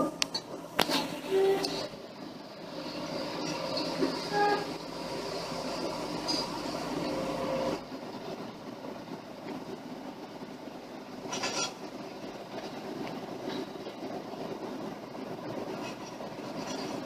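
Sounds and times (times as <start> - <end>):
excavator diesel engine and hydraulics: 0.0 - 17.0
brief high squeal: 4.2 - 4.7.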